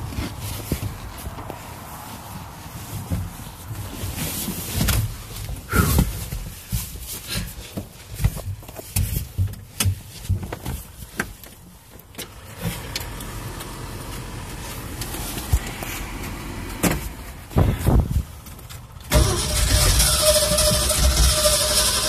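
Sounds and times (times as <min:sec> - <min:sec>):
engine knocks: 0:12.1 - 0:22.0
truck engine running: 0:12.1 - 0:22.0
loud engine bursts: 0:19.1 - 0:22.0.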